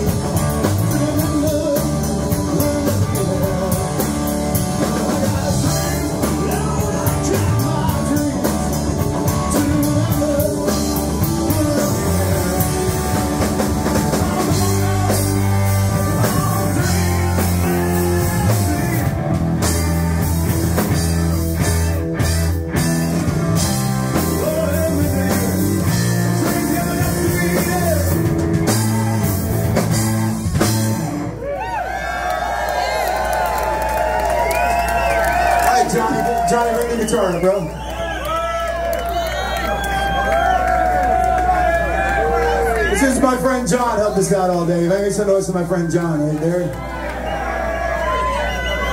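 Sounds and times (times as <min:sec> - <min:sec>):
man singing: 0:00.0 - 0:19.1, 0:24.1 - 0:29.5
live rock band playing: 0:00.0 - 0:31.8, 0:32.4 - 0:38.0, 0:38.7 - 0:48.9.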